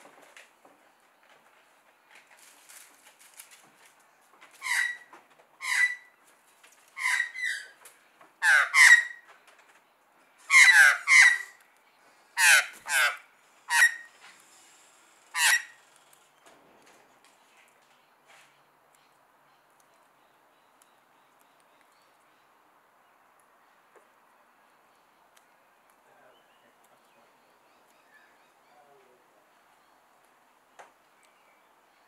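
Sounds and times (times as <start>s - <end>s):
magpie calling: 4.6s - 6.1s, 7.0s - 7.8s, 8.4s - 9.3s, 10.5s - 11.6s, 12.4s - 14.2s, 15.3s - 15.9s.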